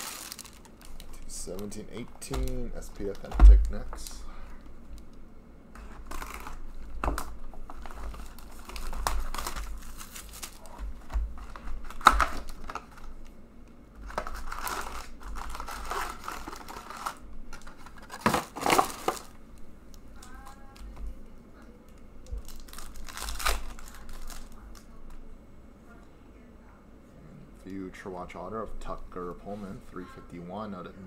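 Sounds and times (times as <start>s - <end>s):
shrink wrap tearing and crinkling: 0.0s - 4.2s, 5.8s - 13.3s, 14.0s - 19.4s, 21.9s - 24.9s
card packs being handled: 0.0s - 4.3s, 5.8s - 13.3s, 14.0s - 19.3s, 22.4s - 24.8s.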